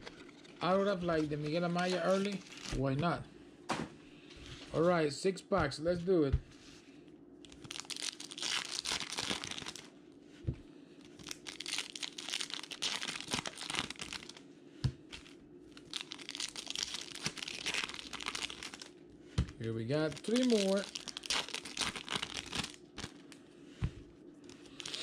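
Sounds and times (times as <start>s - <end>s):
foil wrappers crinkling and tearing: 0.0s - 2.9s, 7.4s - 9.9s, 11.1s - 14.4s, 15.1s - 19.0s, 19.6s - 23.4s, 24.4s - 25.0s.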